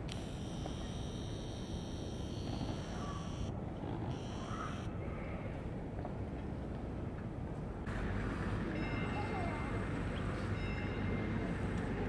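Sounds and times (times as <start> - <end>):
camera zoom motor whine: 0.0 - 4.9.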